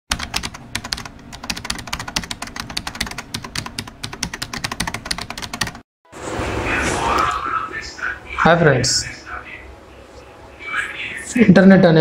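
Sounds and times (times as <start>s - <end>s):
rapid irregular clicking: 0.1s - 5.8s.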